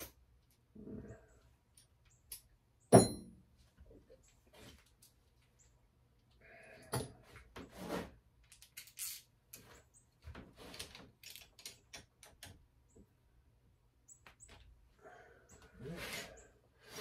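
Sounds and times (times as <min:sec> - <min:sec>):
metal parts and tools clicking: 0:08.4 - 0:09.8.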